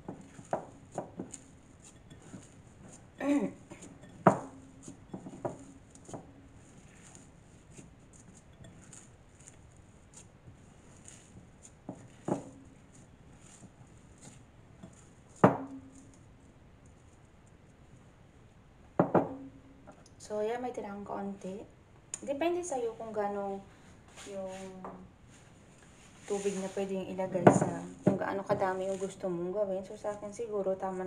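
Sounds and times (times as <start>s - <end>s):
dough rubbing: 0.0s - 18.2s, 24.1s - 31.0s
knocks on glass bowl: 19.0s - 19.5s.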